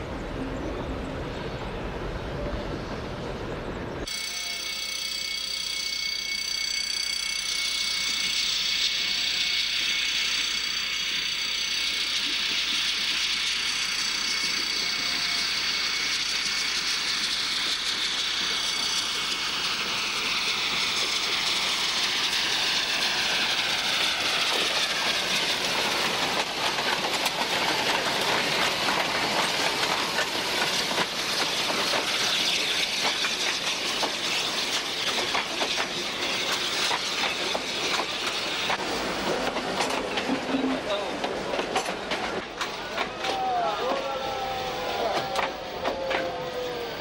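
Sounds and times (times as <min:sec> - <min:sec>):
faint falling squeal: 0:04.0 - 0:26.3, 0:42.7 - 0:47.0
train wheels clicking over rail joints: 0:07.2 - 0:44.1
steam hissing: 0:07.3 - 0:41.6.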